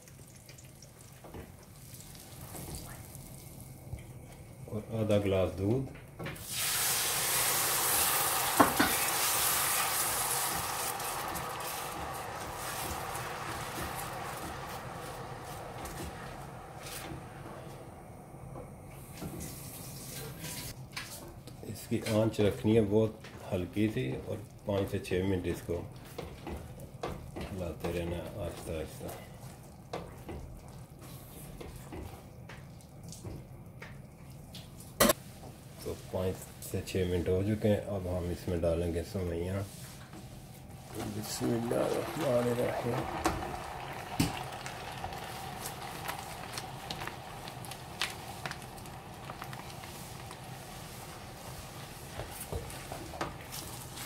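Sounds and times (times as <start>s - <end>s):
milk sizzling in a pan: 0.0s - 4.4s, 6.4s - 21.2s, 21.8s - 33.5s, 39.2s - 54.0s
small crackles: 40.8s - 54.0s.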